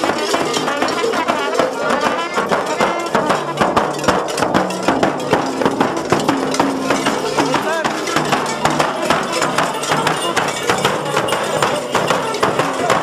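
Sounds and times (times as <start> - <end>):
accordion: 0.0 - 3.6
trumpet: 0.0 - 4.6, 8.8 - 13.0
frame drum beats: 0.0 - 13.0.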